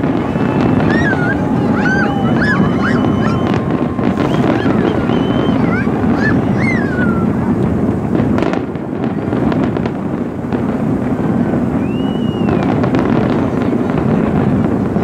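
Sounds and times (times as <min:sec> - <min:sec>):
firework whistle: 0:00.0 - 0:07.7, 0:11.3 - 0:14.7
firework shells bursting and crackling: 0:00.0 - 0:15.0.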